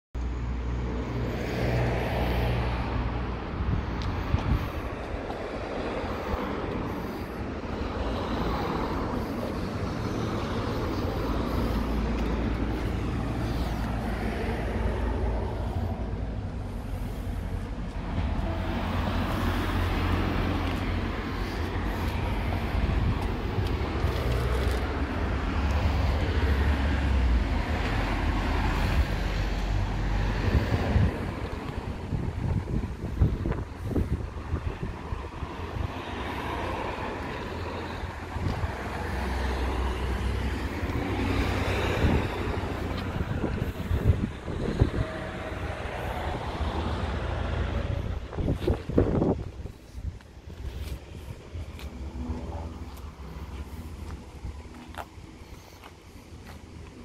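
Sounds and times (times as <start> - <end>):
street noise: 0.1 - 57.0.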